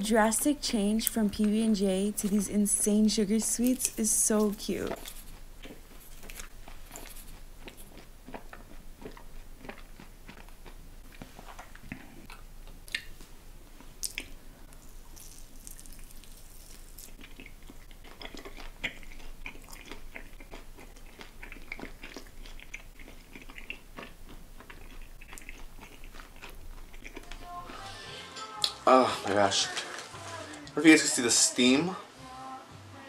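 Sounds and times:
chewing crunchy candy: 3.4 - 27.9.

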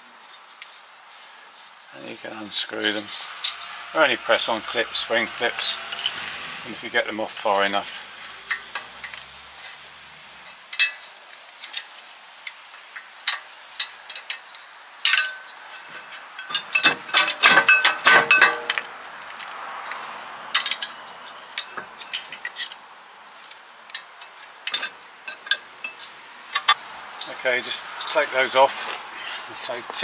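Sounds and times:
metal ringing: 2.8 - 6.9, 16.4 - 18.9.

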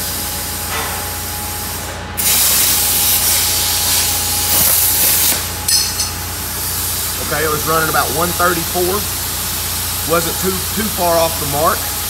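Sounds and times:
plasma cutter hissing: 2.2 - 5.6, 6.3 - 12.0.

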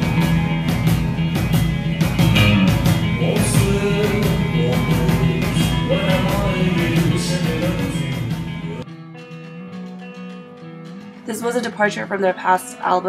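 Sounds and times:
drums and cymbals: 0.0 - 12.1
guitar strumming: 0.0 - 13.0
person singing: 3.1 - 8.8.

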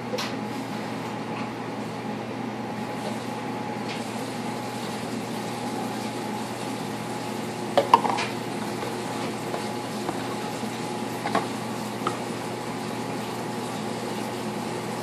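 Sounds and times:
washing machine humming: 0.0 - 15.0
plastic bottles clattering on countertop: 7.8 - 8.3.

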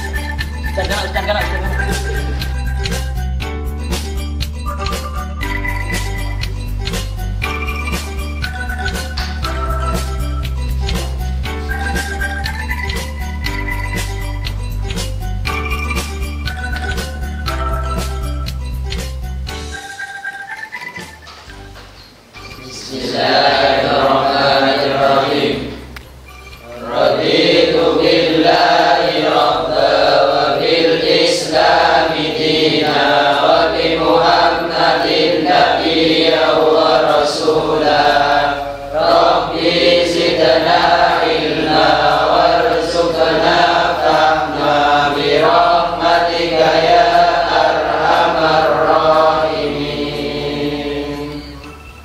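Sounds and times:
men chanting in unison: 22.8 - 25.8, 26.8 - 51.6.

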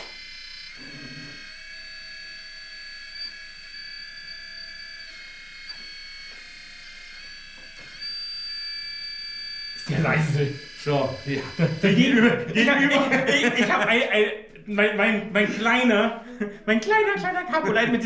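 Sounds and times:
hydraulic pump high-pitched whine: 0.0 - 13.8.

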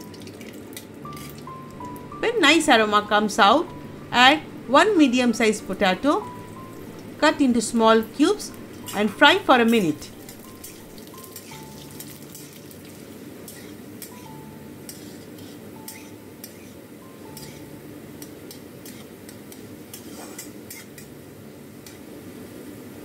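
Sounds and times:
potato sizzling in hot oil: 6.4 - 14.2
metal spatula scraping a pan: 13.5 - 14.3, 14.9 - 16.8, 19.9 - 21.1.

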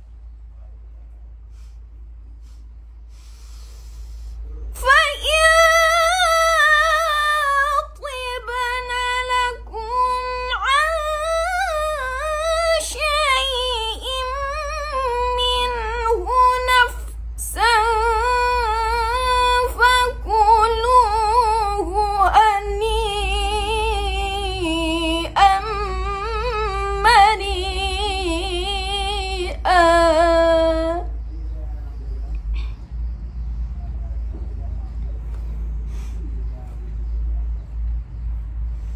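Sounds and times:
low steady hum: 0.0 - 38.9
woman reciting melodically: 4.8 - 31.2.

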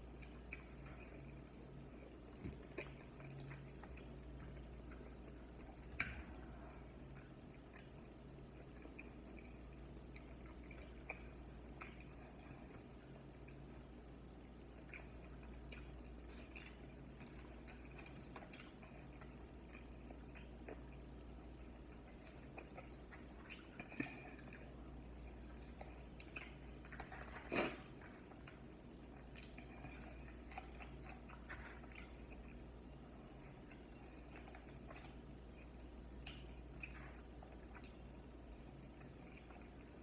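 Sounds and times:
person chewing: 0.0 - 40.0
steady low hum: 0.0 - 40.0.

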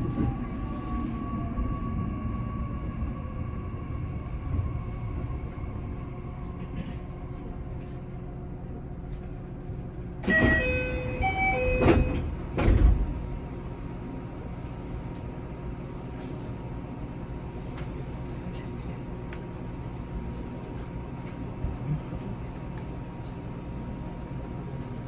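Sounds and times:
faint electric train whine: 0.0 - 25.0
door chime of short notes: 10.3 - 12.2.

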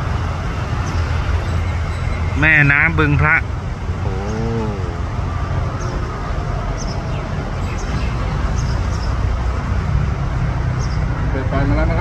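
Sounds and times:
low rumble of engines and traffic: 0.0 - 12.0
bird chirping: 0.8 - 3.2, 5.7 - 9.5, 10.7 - 11.2.

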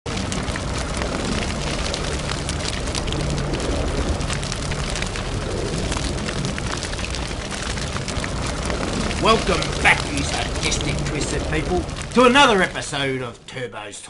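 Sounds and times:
irregular crackling: 0.0 - 14.0
low rumble: 0.1 - 13.6.

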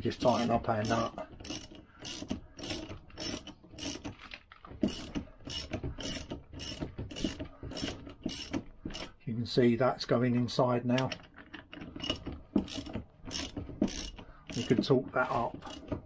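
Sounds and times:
ratchet spanner clicking: 0.3 - 4.1, 4.8 - 9.1, 12.0 - 14.9, 15.6 - 15.9.

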